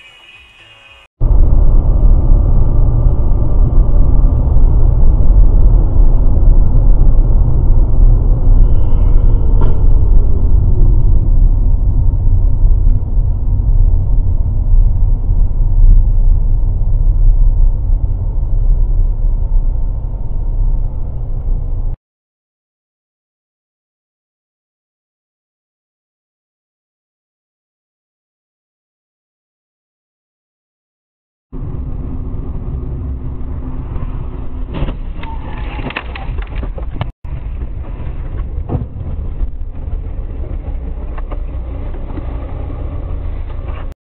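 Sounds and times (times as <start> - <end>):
road and engine rumble: 0.0 - 22.0, 31.6 - 44.0.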